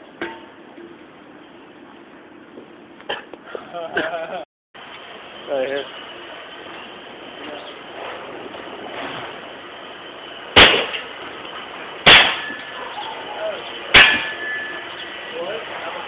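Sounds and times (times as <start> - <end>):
tool clanging blows: 12.0 - 12.8, 13.9 - 15.0.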